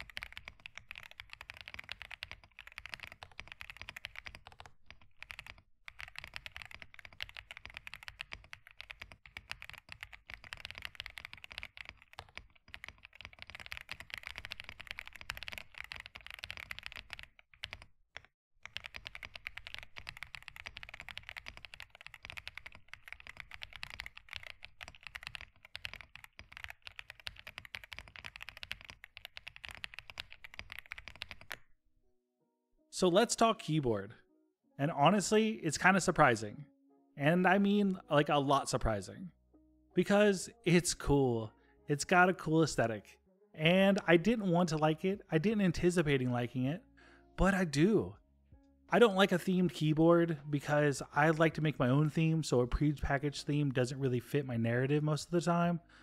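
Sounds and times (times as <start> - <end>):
mechanical keyboard typing: 0.0 - 31.6.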